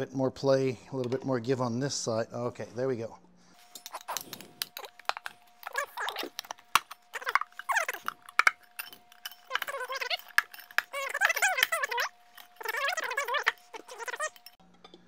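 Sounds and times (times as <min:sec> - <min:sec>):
rubber tyre bead squealing: 0:03.8 - 0:14.6.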